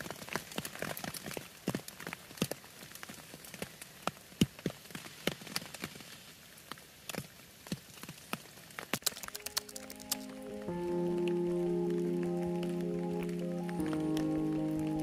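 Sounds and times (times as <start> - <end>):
raindrops tapping on a tarp: 0.0 - 15.0
soft music: 9.2 - 15.0.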